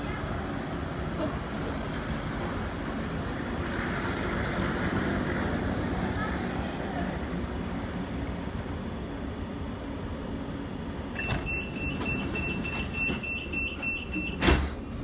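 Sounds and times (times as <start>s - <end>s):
low rumble of standing train: 0.0s - 15.0s
sliding doors thumping shut: 11.1s - 15.0s
short high warning beeps: 11.2s - 14.4s.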